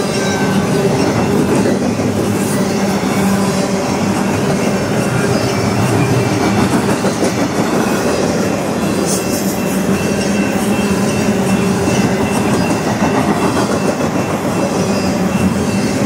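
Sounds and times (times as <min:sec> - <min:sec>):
high wheel squeal: 0:00.0 - 0:16.0
train wheels rumbling on rail: 0:00.0 - 0:16.0.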